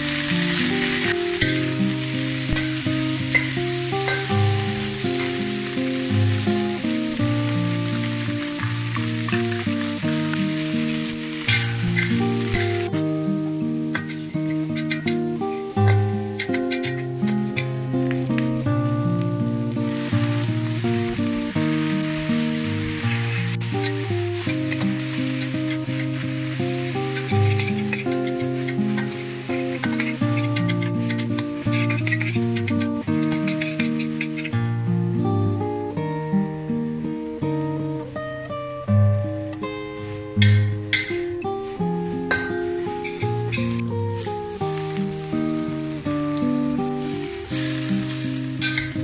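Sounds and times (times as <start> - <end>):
vegetables sizzling in a wok: 0.0 - 49.0
metal spatula tossing in wok: 15.9 - 17.6, 23.0 - 34.5, 47.0 - 49.0.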